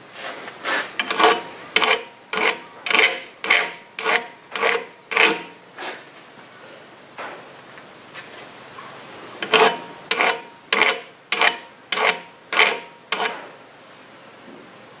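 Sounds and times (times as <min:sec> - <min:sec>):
hand file rasping on metal: 0:01.0 - 0:05.6, 0:09.4 - 0:13.4.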